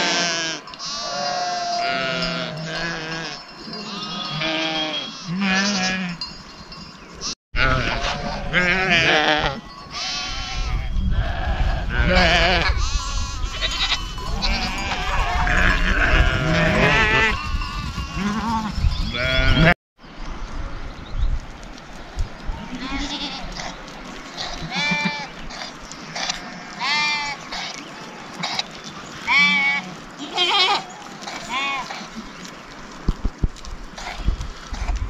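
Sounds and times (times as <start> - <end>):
flock bleating: 0.0 - 6.2, 29.3 - 32.0.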